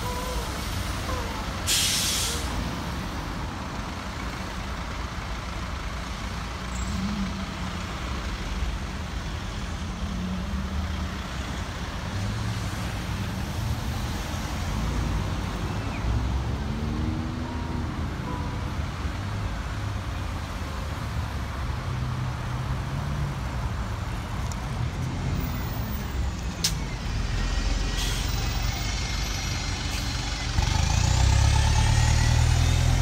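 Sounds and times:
bus air brakes hissing: 0.0 - 2.8, 27.6 - 30.4
traffic engine rumble: 0.0 - 33.0.

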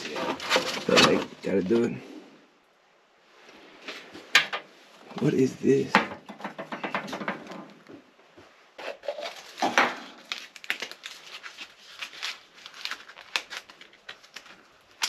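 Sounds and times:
bag crinkling and rustling: 8.8 - 15.0.

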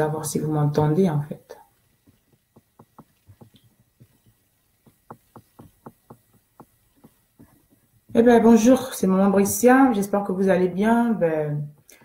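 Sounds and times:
faint light taps: 1.8 - 8.2.

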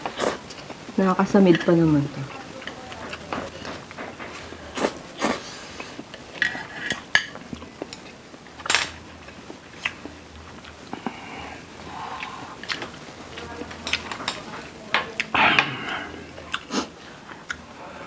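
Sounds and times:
slurping noodles: 4.7 - 7.0
chopsticks clinking against bowls: 12.6 - 16.0.

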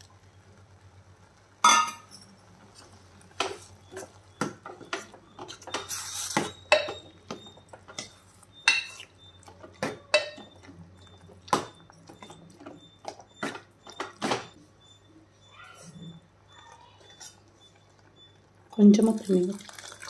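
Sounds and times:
ladle scraping metal pot: 3.4 - 9.0
metal ladle clinking against pot: 3.4 - 9.0, 9.6 - 10.6.

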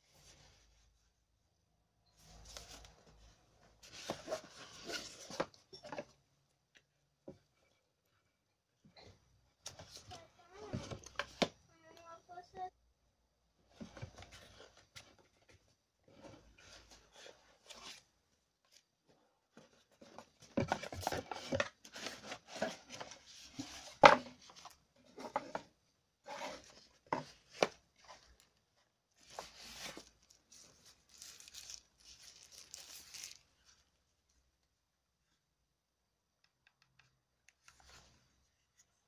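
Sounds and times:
cardboard and plastic bag rustling: 29.2 - 33.8.

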